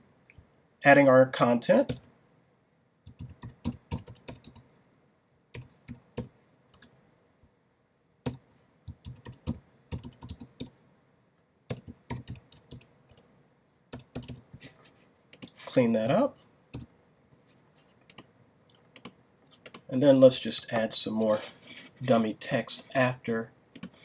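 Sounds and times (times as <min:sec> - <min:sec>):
keyboard typing: 0:03.0 - 0:04.7, 0:05.5 - 0:07.0, 0:08.2 - 0:10.7, 0:11.7 - 0:13.2, 0:13.9 - 0:14.4, 0:15.3 - 0:16.9, 0:18.0 - 0:18.3, 0:18.9 - 0:19.9, 0:23.7 - 0:24.0.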